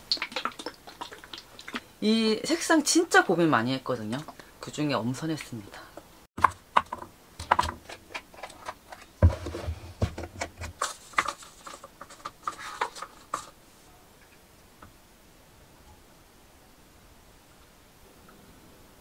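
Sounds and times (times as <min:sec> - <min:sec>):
paper cups clicking and tapping: 0:00.0 - 0:01.9, 0:06.4 - 0:13.6.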